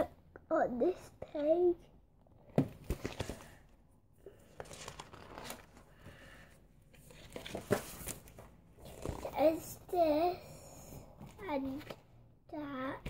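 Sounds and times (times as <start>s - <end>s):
paper pages rustling and crinkling: 2.7s - 3.6s, 4.3s - 9.4s, 11.2s - 12.0s.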